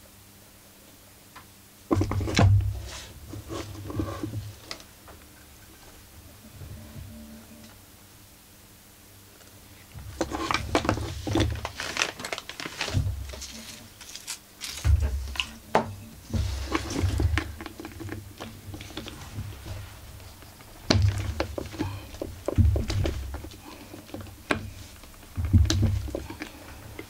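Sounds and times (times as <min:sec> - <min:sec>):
dull thumps of objects set down: 0:01.9 - 0:04.5, 0:14.6 - 0:27.0.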